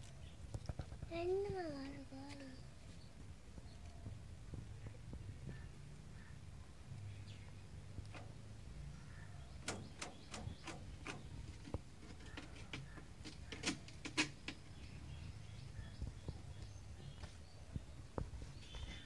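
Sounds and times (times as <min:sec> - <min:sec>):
birds chirping in sharp ticks: 0:04.8 - 0:19.0.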